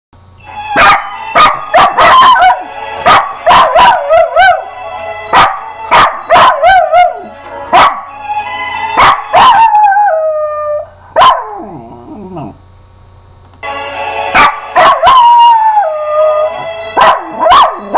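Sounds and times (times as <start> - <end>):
dog howling: 0.8 - 4.7, 9.0 - 12.6, 14.4 - 17.9.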